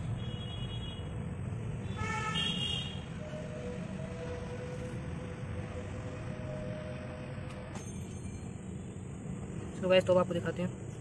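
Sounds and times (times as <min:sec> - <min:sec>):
low rumble of traffic: 0:00.0 - 0:11.0
vehicle horn toots: 0:01.9 - 0:03.0.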